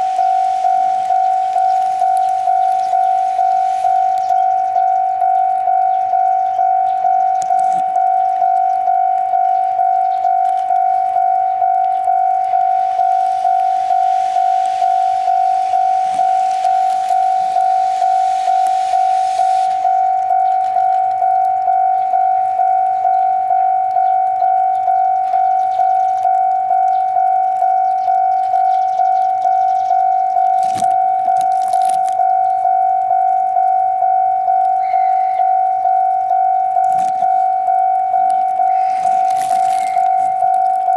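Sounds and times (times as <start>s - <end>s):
level crossing warning bell: 0.0s - 40.9s
steam locomotive hissing steam: 13.8s - 15.3s, 17.8s - 19.8s.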